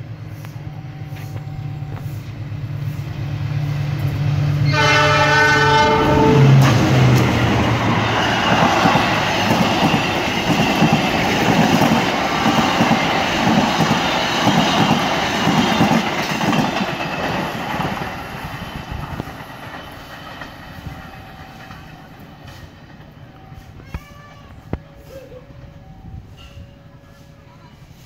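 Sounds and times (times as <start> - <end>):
train wheels clicking over rail joints: 6.4 - 28.0.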